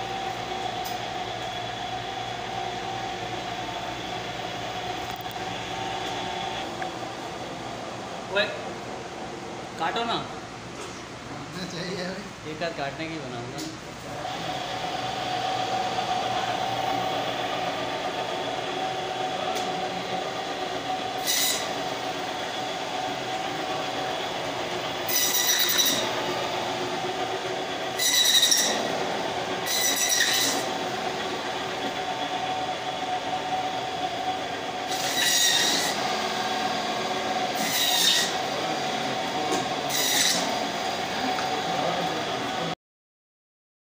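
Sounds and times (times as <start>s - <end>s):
band saw whining: 0.0s - 8.4s, 13.0s - 42.8s
saw blade squealing on bone: 21.2s - 21.8s, 25.1s - 26.0s, 28.0s - 28.8s, 29.6s - 30.7s, 34.9s - 36.0s, 37.6s - 38.4s, 39.9s - 40.5s.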